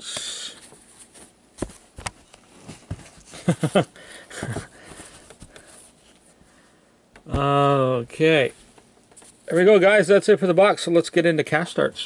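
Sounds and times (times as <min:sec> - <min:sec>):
gloved hands scuffing and tapping: 0:00.7 - 0:06.2.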